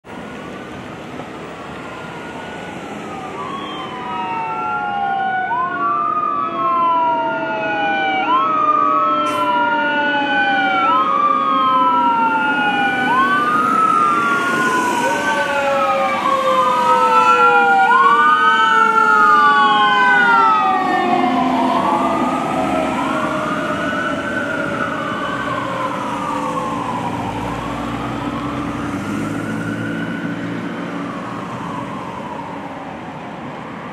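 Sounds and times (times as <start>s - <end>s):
fire engine siren wailing: 0.0s - 33.9s.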